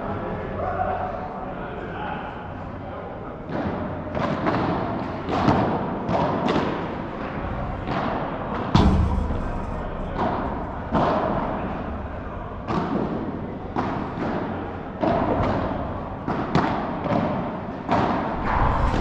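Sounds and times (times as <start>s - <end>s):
heavy thud: 8.8s - 11.1s
padel ball knocks echoing: 8.8s - 11.2s.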